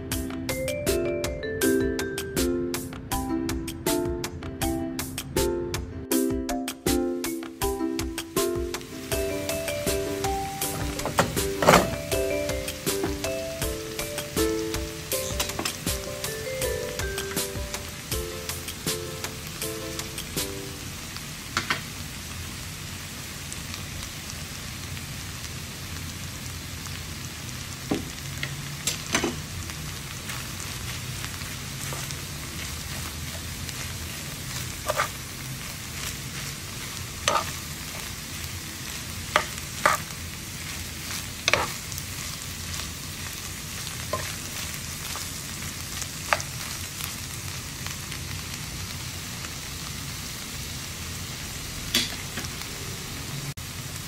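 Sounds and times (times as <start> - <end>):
food sizzling in a frying pan: 7.3 - 54.0
metal spoon clinking on pan: 37.3 - 37.6.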